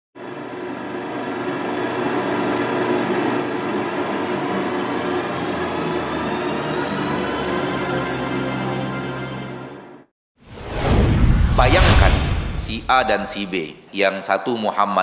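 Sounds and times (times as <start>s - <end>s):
film projector clatter and whir: 0.2s - 8.7s.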